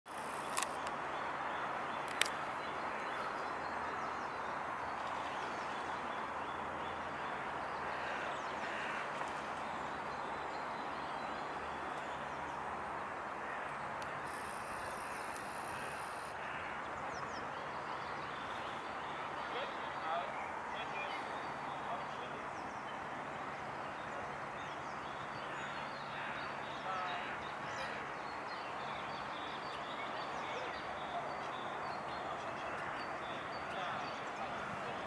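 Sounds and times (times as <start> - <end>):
outdoor background noise: 0.0 - 35.0
faint bird calls: 13.4 - 16.8, 25.4 - 28.3.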